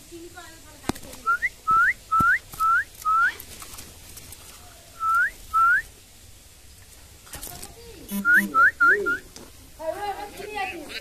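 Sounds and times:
whistled notes sliding upward: 0:08.1 - 0:09.2.

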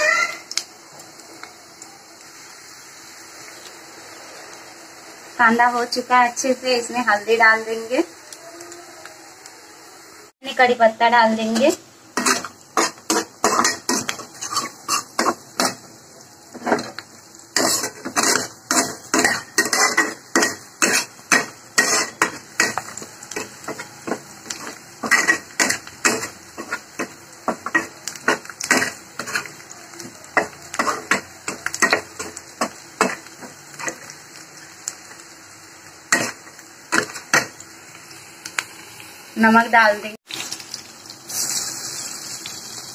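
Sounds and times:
faint frying sizzle: 0:00.0 - 0:42.9
spatula scraping a metal pan: 0:12.2 - 0:15.8, 0:17.6 - 0:29.5.

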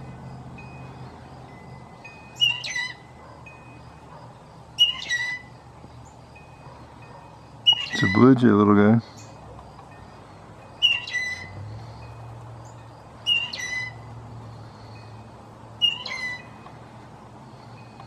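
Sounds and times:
blue jay harsh calls: 0:02.4 - 0:03.2, 0:03.9 - 0:08.4, 0:10.8 - 0:12.0, 0:12.6 - 0:15.1, 0:15.8 - 0:16.6.

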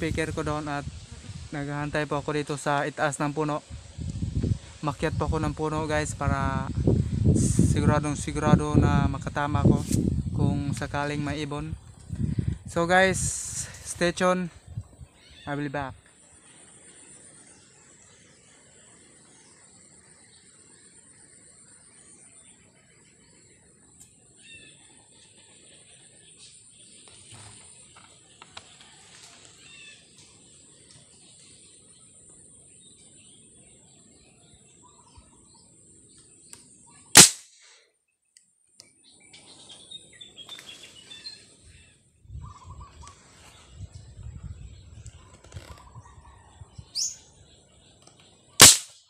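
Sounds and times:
insects droning: 0:00.0 - 0:37.3
bird chirps: 0:15.0 - 0:28.1, 0:29.6 - 0:37.1, 0:38.3 - 0:48.6
marble gun shot crack: 0:37.2 - 0:37.8, 0:48.6 - 0:49.0.

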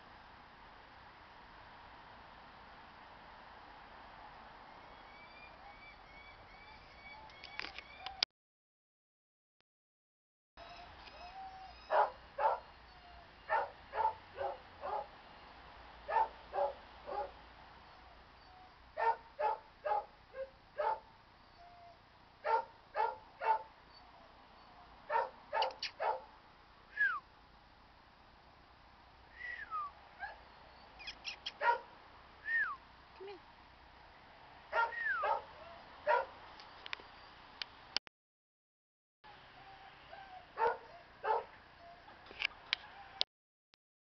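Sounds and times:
small dog yapping: 0:25.1 - 0:26.2, 0:34.7 - 0:36.3, 0:40.6 - 0:41.5
dog high falling calls: 0:34.7 - 0:36.3, 0:40.5 - 0:41.5.

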